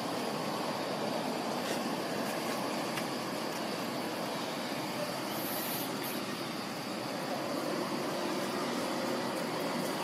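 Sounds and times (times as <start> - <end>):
outdoor background noise: 0.0 - 10.0
brief high hiss: 5.3 - 6.3.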